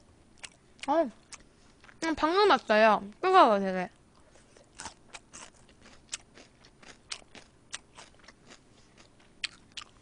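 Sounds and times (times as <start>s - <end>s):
chewing crunchy fried chicken: 0.3s - 2.0s, 4.0s - 10.0s.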